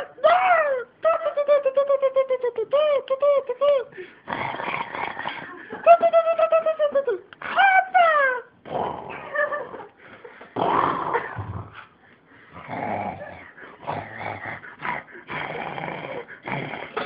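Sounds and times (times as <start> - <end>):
dog growling and whining: 4.3 - 5.6, 10.6 - 17.0.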